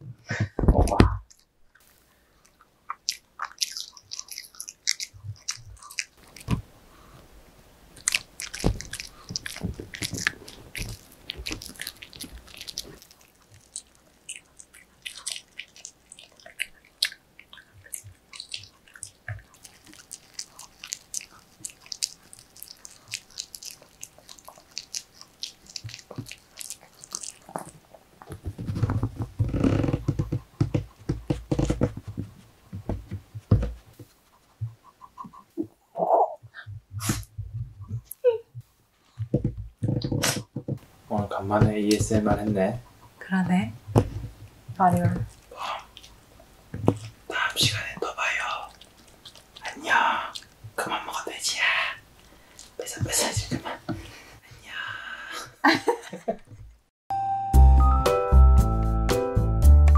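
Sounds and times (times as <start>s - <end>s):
dog chewing and crunching treat: 0.9s - 7.2s, 7.9s - 35.4s, 39.2s - 43.2s, 43.8s - 54.2s
wet smacking clicks: 2.4s - 6.7s, 8.0s - 33.8s, 43.9s - 50.8s.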